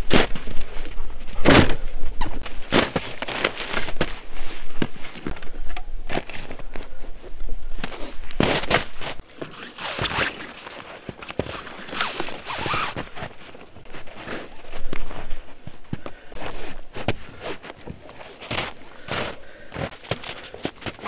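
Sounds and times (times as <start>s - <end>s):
bags thudding onto plastic sled: 2.4s - 5.1s, 8.4s - 14.5s
boots crunching in snow: 2.4s - 5.3s, 7.8s - 21.0s.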